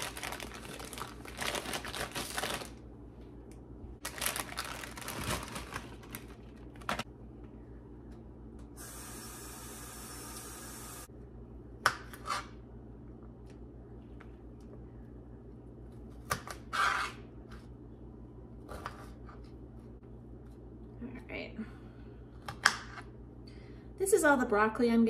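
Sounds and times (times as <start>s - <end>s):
plastic bag crinkling: 0.0s - 2.8s, 4.0s - 7.0s
tap water running: 8.8s - 11.1s.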